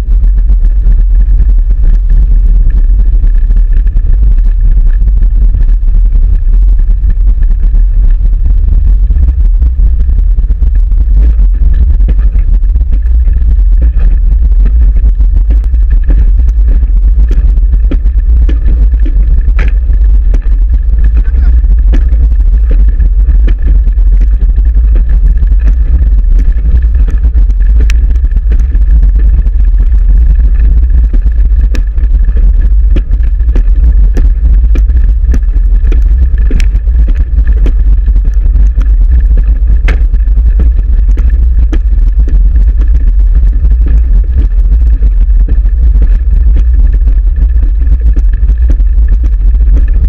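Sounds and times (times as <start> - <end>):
wind and vibration rumble: 0.0 - 50.0
small clicks and rattles: 10.7 - 45.0.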